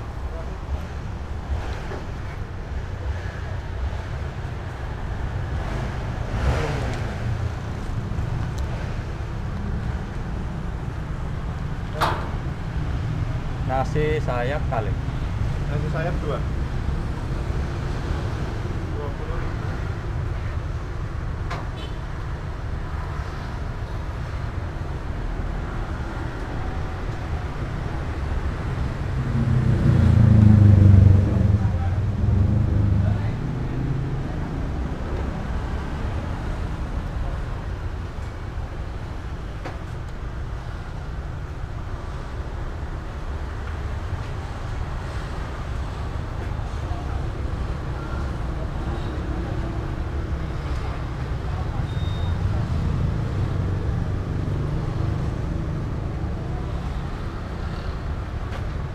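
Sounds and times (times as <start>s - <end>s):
street noise: 0.0s - 58.9s.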